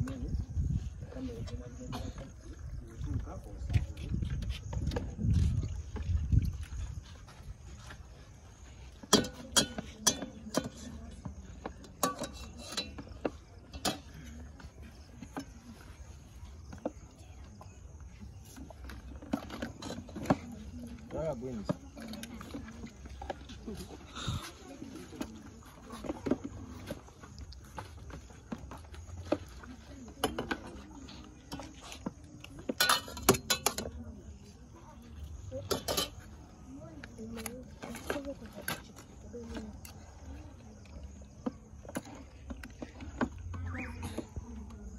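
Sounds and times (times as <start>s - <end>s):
faint voices murmuring: 0.0s - 44.9s
plastic plates and utensils clinking: 8.6s - 34.6s, 35.2s - 44.4s
dishes clattering: 9.0s - 11.0s, 11.9s - 14.2s, 32.7s - 34.0s, 35.6s - 36.3s
spoons clinking on plates: 9.0s - 11.0s, 11.8s - 14.1s, 32.7s - 34.0s, 35.6s - 36.3s.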